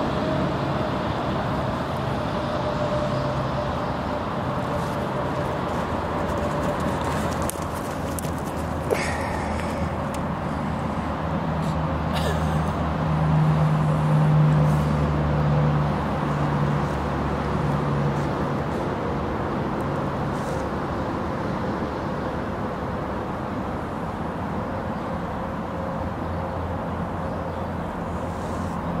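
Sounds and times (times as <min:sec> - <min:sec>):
low motor hum: 0:00.0 - 0:11.6
outdoor rumble: 0:00.0 - 0:29.0.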